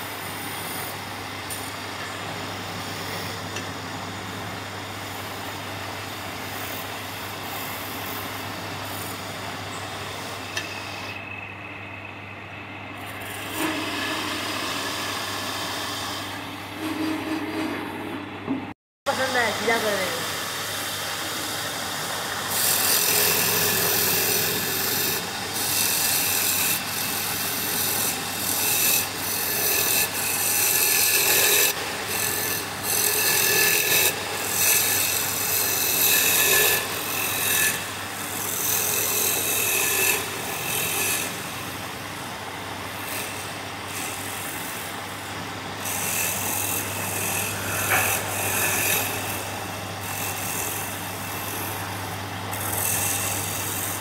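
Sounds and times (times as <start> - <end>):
wood lathe motor hum: 12.7 - 18.5, 19.1 - 54.0
turning tool scraping wood: 13.1 - 18.3, 22.5 - 41.4, 45.8 - 51.7, 52.5 - 54.0.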